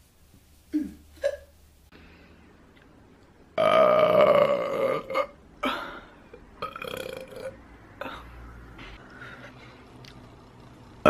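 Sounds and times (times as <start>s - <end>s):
woman burping: 3.6s - 5.8s, 6.6s - 7.5s.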